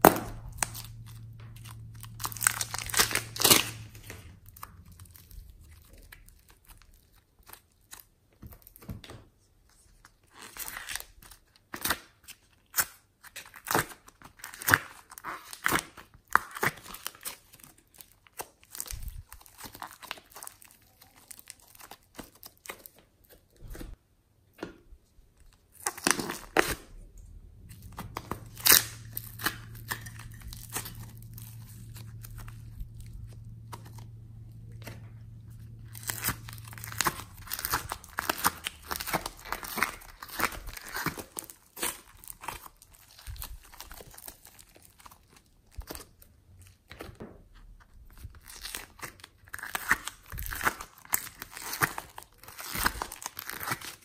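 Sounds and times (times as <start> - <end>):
plastic bag crinkling: 0.0 - 8.0, 16.9 - 23.9, 25.4 - 46.8
foam clay tearing: 0.0 - 8.8, 10.1 - 24.0, 25.5 - 54.0.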